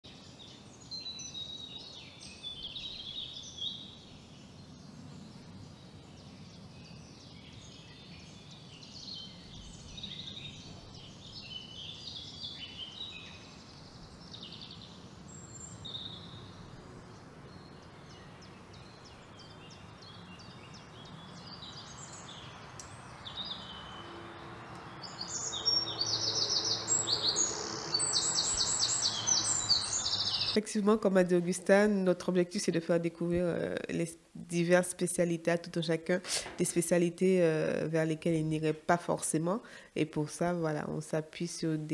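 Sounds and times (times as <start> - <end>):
birds chirping and singing: 0.1 - 30.6
steady background hiss: 0.1 - 41.9.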